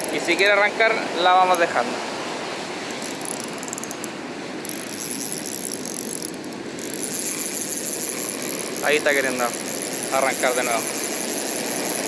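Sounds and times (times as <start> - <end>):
fishing reel clicking: 2.9 - 12.0.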